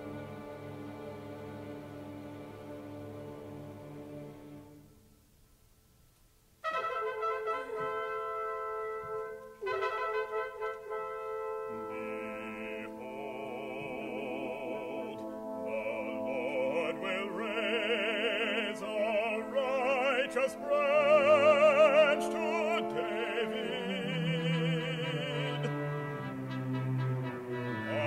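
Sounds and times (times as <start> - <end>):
orchestral accompaniment: 0.0 - 5.0, 6.6 - 28.0
solo voice singing with vibrato: 7.2 - 9.0, 11.8 - 26.0.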